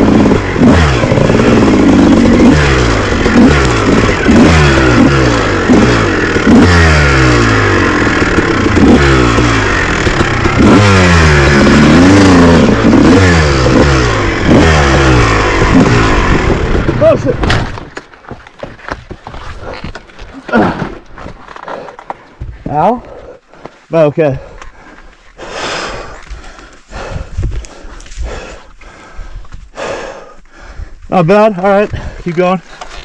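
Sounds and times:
dirt bike engine revving: 0.0s - 17.9s.

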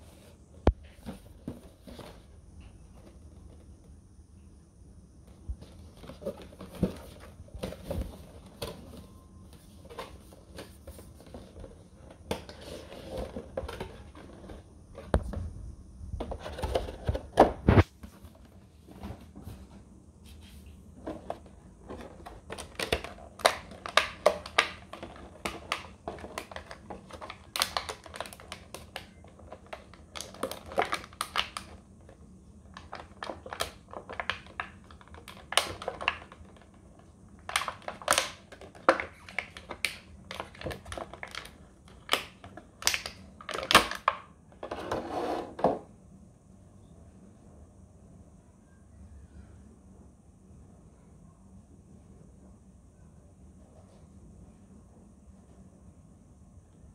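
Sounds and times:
plastic packaging crinkling: 21.0s - 44.2s.

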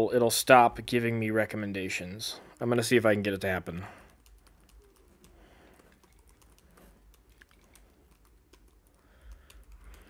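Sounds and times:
faint keyboard typing: 2.5s - 10.0s.

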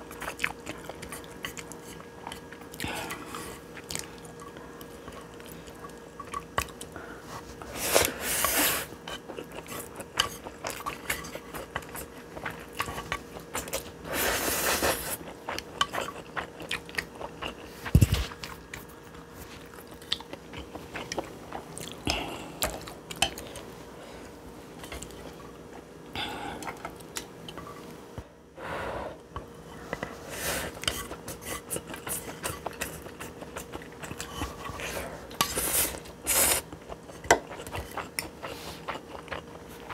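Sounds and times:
wet chewing with mouth clicks: 0.0s - 7.0s, 7.6s - 14.0s, 14.6s - 23.7s, 30.7s - 39.9s
slurping noodles: 14.1s - 15.2s.

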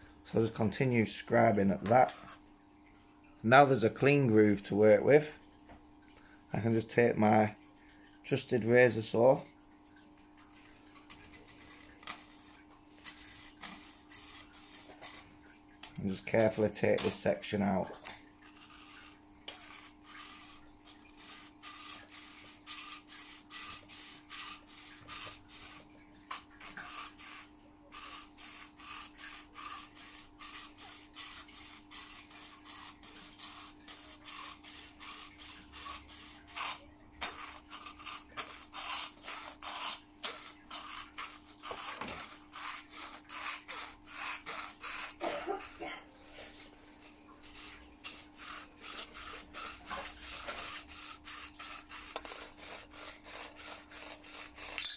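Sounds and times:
saw rasping through plastic: 11.1s - 45.9s, 47.4s - 54.9s.

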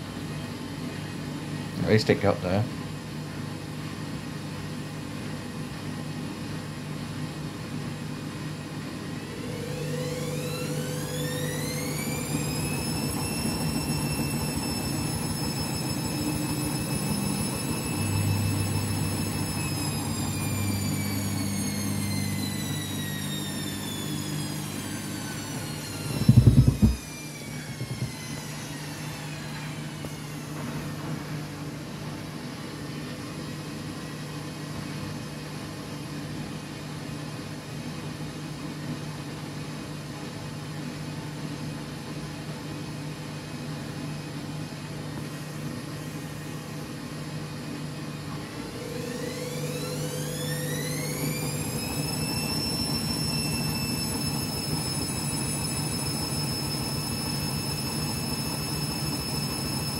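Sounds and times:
washing machine drum spinning: 9.2s - 31.5s, 48.5s - 59.9s
loud low thump: 26.2s - 27.0s.

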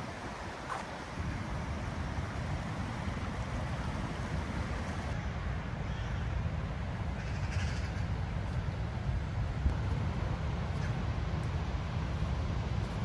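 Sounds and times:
river rushing: 0.0s - 5.7s
wind buffeting microphone: 0.0s - 13.0s.

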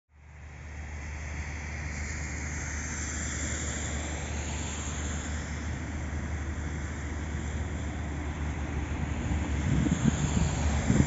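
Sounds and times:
distant road traffic: 0.1s - 11.0s
wind buffeting microphone: 7.1s - 11.0s.

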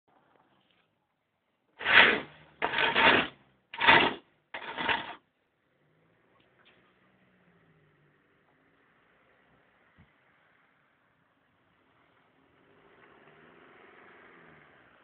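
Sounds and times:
scratchy rubbing noise: 1.8s - 5.2s.

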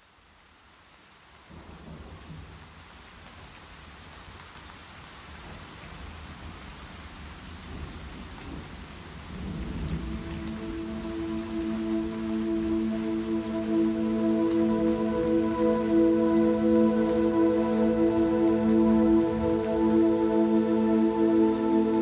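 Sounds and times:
rain: 0.0s - 22.0s
low rolling thunder rumble: 9.3s - 10.9s
soft sustained music tones: 9.4s - 22.0s.

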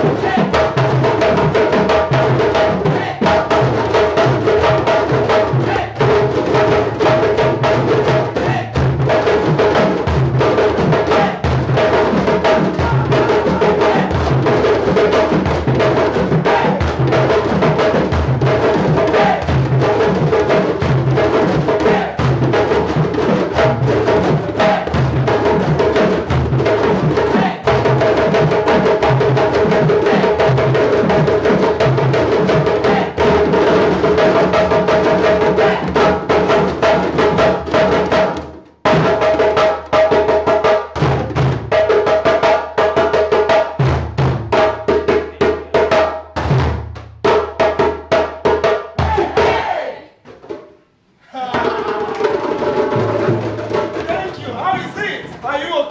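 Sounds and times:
djembes drumming: 0.0s - 50.8s, 51.4s - 55.9s.

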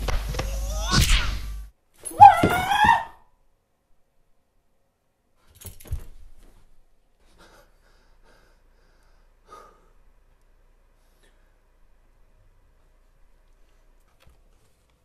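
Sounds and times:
faint breathing: 7.2s - 10.1s, 10.9s - 11.7s.

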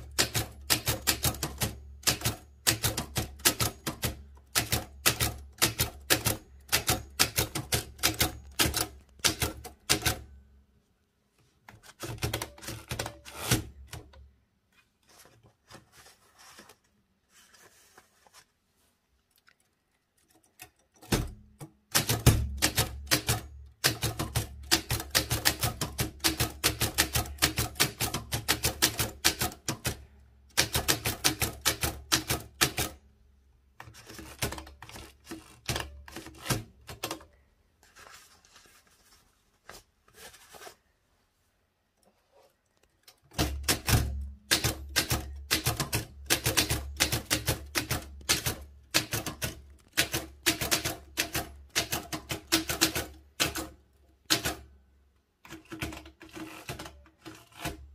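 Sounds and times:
typewriter keystroke clacks: 0.0s - 10.2s, 20.7s - 33.0s, 43.3s - 54.6s.

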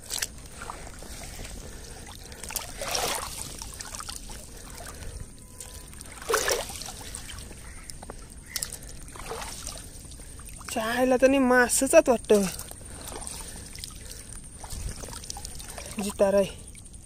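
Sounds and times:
water sloshing and trickling: 0.0s - 17.0s
water splashes: 0.0s - 17.0s.

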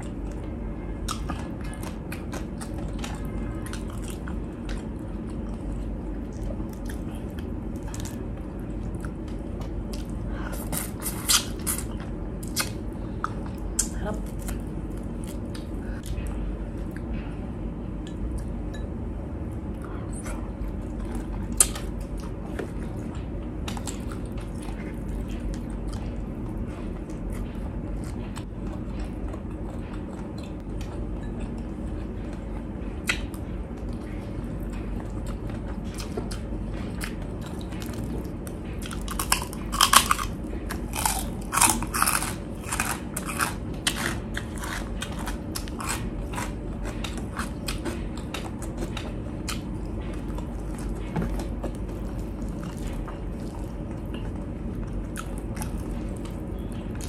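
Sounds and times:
steady low hum: 0.0s - 57.0s
close chewing: 19.7s - 57.0s
loud crunching bites: 38.9s - 47.8s.

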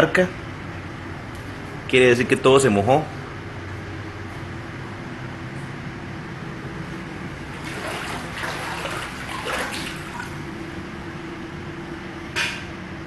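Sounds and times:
steady low hum: 0.0s - 13.0s
water splashing on a floor: 7.5s - 10.5s.

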